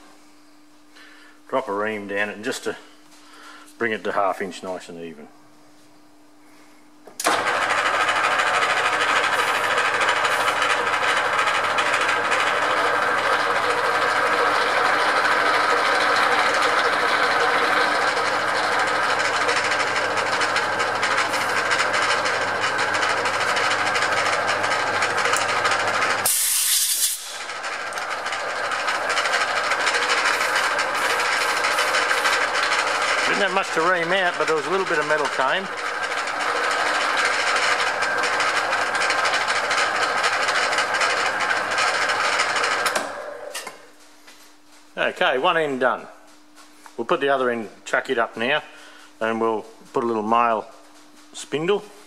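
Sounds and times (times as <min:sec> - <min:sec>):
metal lathe running: 0:07.2 - 0:43.8
sharp high hiss: 0:26.2 - 0:27.5.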